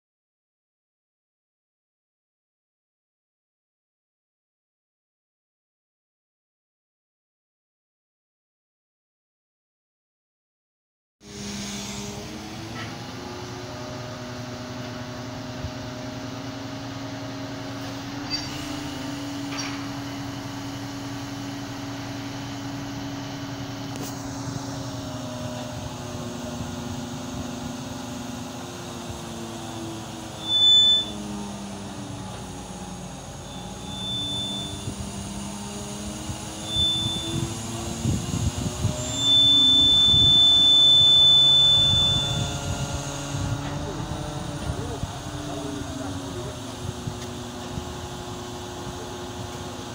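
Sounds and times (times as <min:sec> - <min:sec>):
crane diesel engine running: 0:11.2 - 0:49.9
short high beeps: 0:30.4 - 0:31.2, 0:33.4 - 0:35.0, 0:36.6 - 0:37.5, 0:39.0 - 0:43.7.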